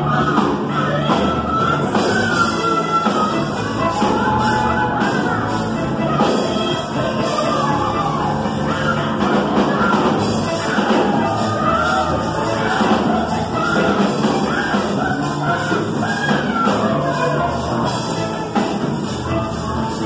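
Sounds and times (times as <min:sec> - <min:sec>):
drum kit with cymbals: 0:00.0 - 0:20.0
woman singing into a microphone: 0:00.0 - 0:20.0.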